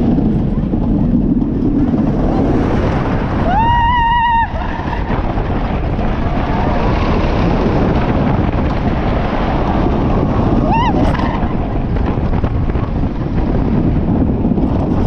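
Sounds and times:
roller coaster rumbling on track: 0.0 - 15.0
wind rushing over microphone: 0.0 - 15.0
rider yelling: 3.4 - 5.1.

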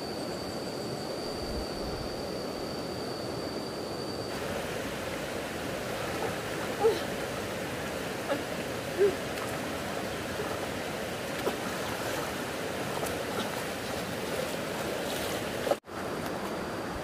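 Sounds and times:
stream water rushing: 4.3 - 17.0.

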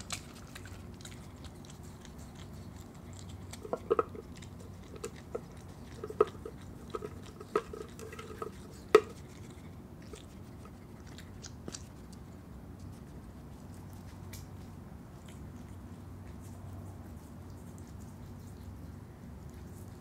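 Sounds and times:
animal crunching waffle cone: 0.0 - 20.0.

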